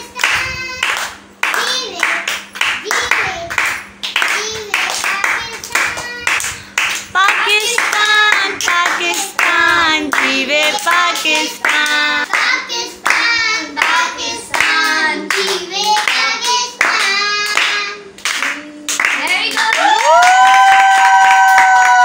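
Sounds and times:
girl singing: 0.0s - 19.6s
children clapping: 0.0s - 22.0s.

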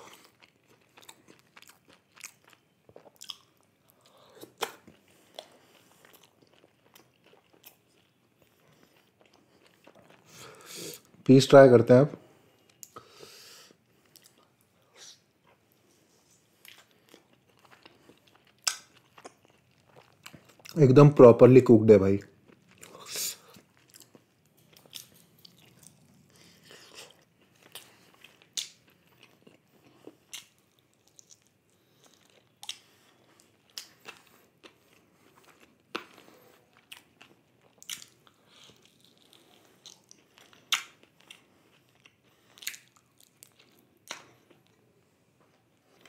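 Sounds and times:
person chewing food: 0.0s - 11.2s, 12.5s - 20.8s, 22.3s - 46.0s
wet mouth clicks and smacks: 39.9s - 41.0s, 42.6s - 44.4s.

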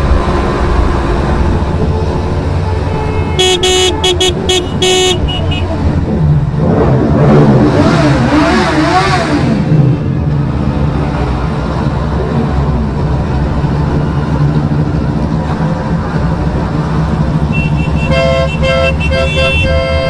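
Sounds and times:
rushing noise: 0.0s - 18.1s
motorcycle engines rumbling: 0.0s - 20.0s
motorcycles revving: 0.0s - 20.0s.

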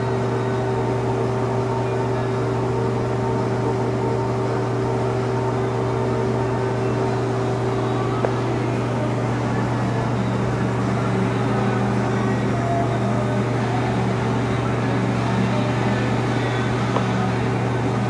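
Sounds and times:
mechanical drone: 0.0s - 18.0s.

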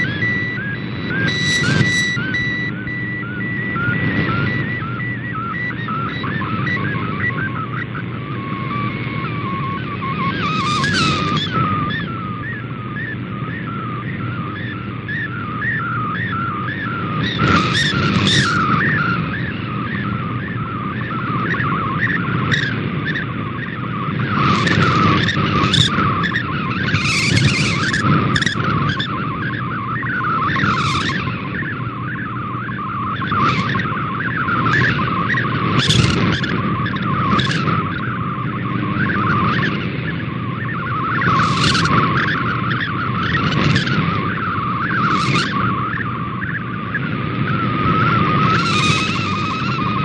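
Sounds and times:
digital signal warbling tones: 0.0s - 50.0s
radio static hiss: 0.0s - 50.0s.

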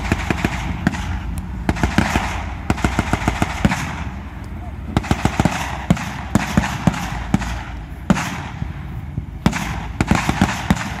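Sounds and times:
steady low rumble: 0.0s - 11.0s.

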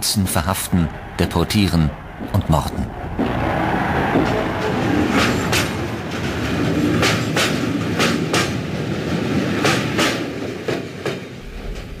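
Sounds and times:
steady low rumble: 0.3s - 5.0s
train wheels clicking on rail joints: 4.2s - 12.0s.

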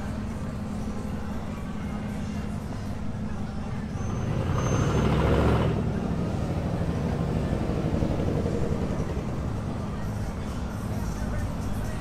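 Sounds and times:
street traffic noise: 0.0s - 12.0s
truck engine driving past: 3.9s - 10.0s.

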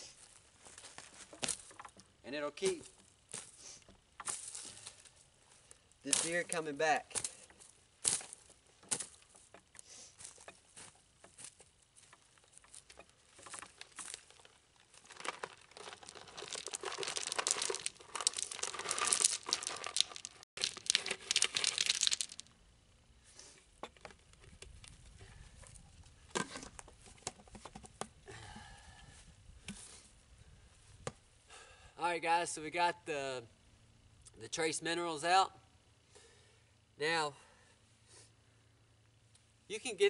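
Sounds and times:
plastic bag crinkling: 13.4s - 22.5s.

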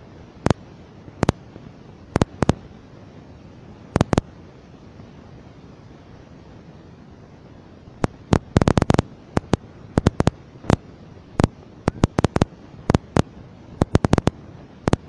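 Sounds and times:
low steady hiss: 0.0s - 15.0s
sharp cracks and pops: 0.4s - 0.6s, 1.2s - 1.4s, 2.2s - 2.6s, 4.0s - 4.3s, 8.0s - 10.8s, 11.4s - 15.0s.

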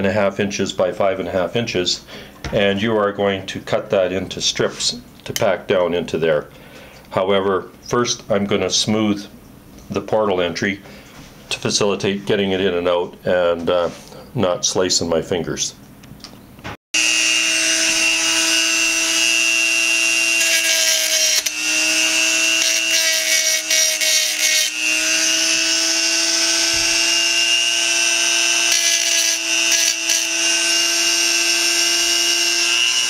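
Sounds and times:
rotary tool grinding metal: 17.0s - 33.0s.

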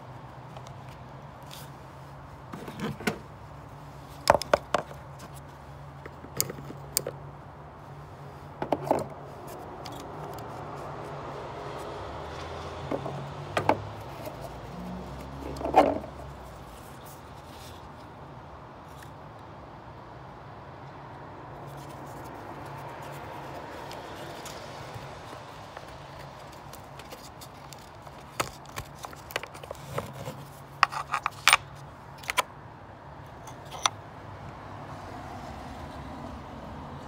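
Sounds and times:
tools clicking and scraping: 4.0s - 7.2s, 8.6s - 10.8s, 12.9s - 18.1s, 21.6s - 32.5s, 33.3s - 34.0s.

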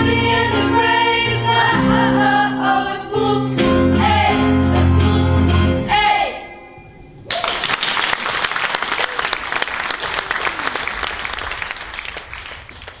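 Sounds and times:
people cheering: 7.2s - 12.7s
audience applause: 7.3s - 13.0s.

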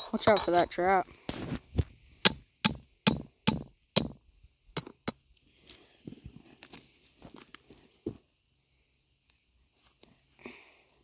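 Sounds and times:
hammer striking metal stake: 0.0s - 0.8s, 2.2s - 4.2s.

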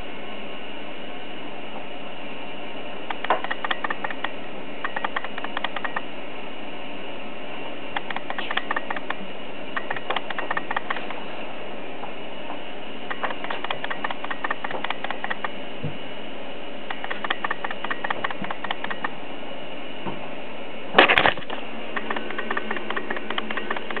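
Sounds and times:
crackling clicks: 3.1s - 6.0s, 8.0s - 9.2s, 9.8s - 11.2s, 13.1s - 15.6s, 16.9s - 19.2s, 21.0s - 24.0s.

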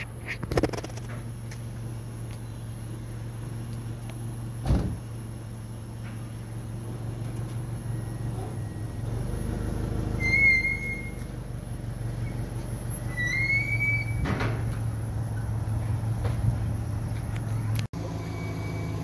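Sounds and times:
van engine idling: 0.0s - 19.0s
high whistle-like chirps: 10.2s - 11.3s.

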